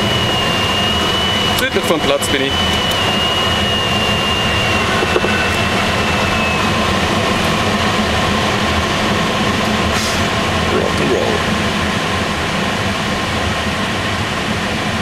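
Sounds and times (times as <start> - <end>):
thin high tone dropping in pitch: 0.0 - 7.3
deep rumble: 0.0 - 12.6
rushing airflow in glider canopy: 2.3 - 10.8.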